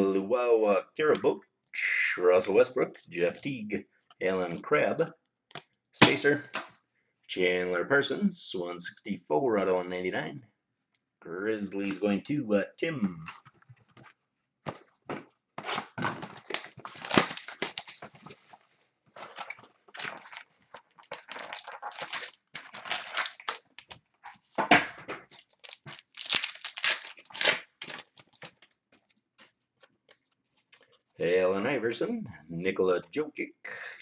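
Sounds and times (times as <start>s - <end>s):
card pack wrapper crinkling and tearing: 15.6s - 24.6s, 25.3s - 31.1s.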